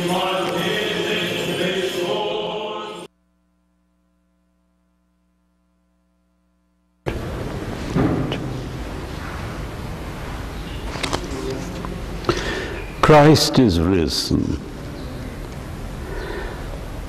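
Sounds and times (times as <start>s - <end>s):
chanting: 0.0s - 3.1s
faint steady hum: 0.0s - 17.0s
loud hiss-like background noise: 7.1s - 17.0s
brief thump: 7.9s - 9.4s.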